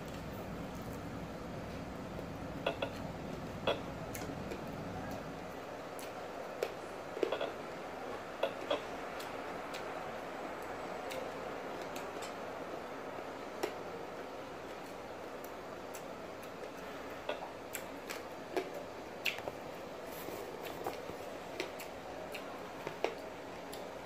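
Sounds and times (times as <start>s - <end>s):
room noise hiss: 0.0s - 24.0s
mouth chewing food: 2.2s - 7.6s, 14.7s - 23.9s.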